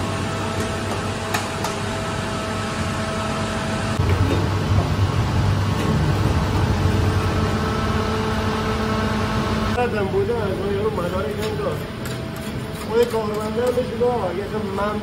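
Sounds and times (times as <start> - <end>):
electric dough mixer humming: 0.0 - 9.8.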